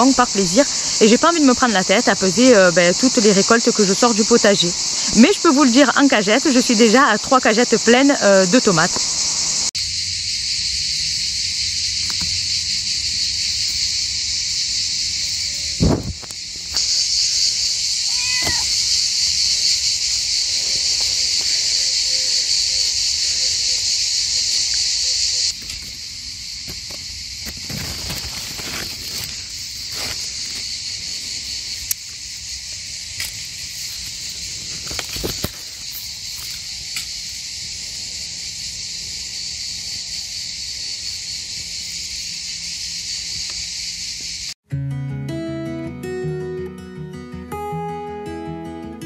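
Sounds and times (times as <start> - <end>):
insects chirring: 0.0 - 44.6
foliage and mulch rustling: 11.4 - 23.1, 25.5 - 36.9.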